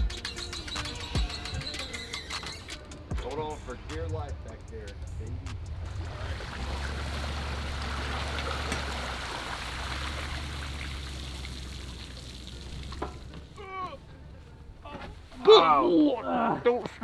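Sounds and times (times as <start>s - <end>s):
water pouring and trickling: 5.9s - 13.6s.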